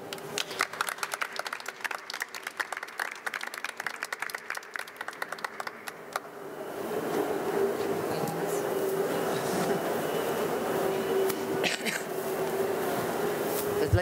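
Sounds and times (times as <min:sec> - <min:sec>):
small group applause: 0:00.0 - 0:06.3.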